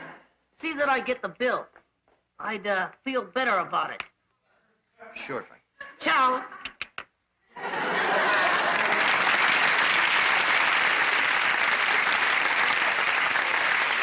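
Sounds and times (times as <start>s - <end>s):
audience applauding: 7.8s - 14.0s.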